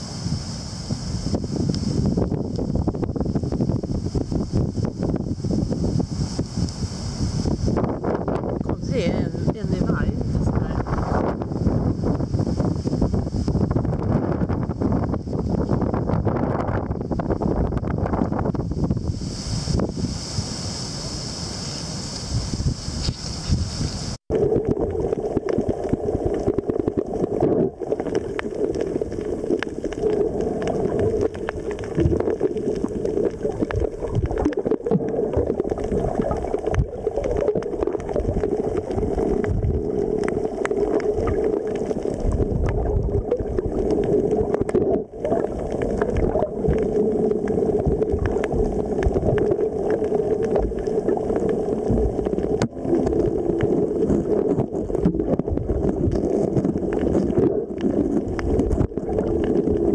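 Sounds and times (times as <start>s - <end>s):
underwater rush and gurgle: 0.0s - 59.9s.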